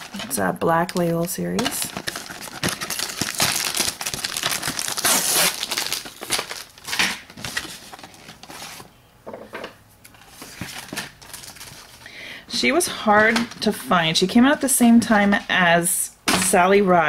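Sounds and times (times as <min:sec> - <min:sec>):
cardboard rustling: 0:00.0 - 0:08.9, 0:10.1 - 0:12.0
plastic packaging crinkling: 0:00.0 - 0:08.9, 0:10.1 - 0:12.1.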